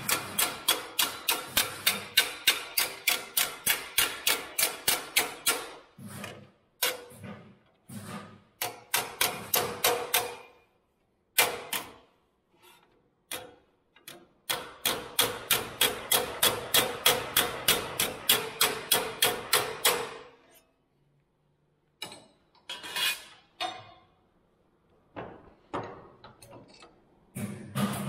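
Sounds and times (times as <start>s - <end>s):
hammer tapping sheet metal: 0.0s - 7.3s, 8.0s - 10.6s, 13.3s - 20.4s.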